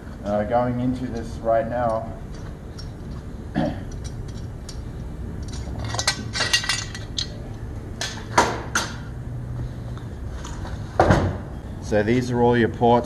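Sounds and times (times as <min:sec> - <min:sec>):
metal parts clinking: 0:01.1 - 0:09.0.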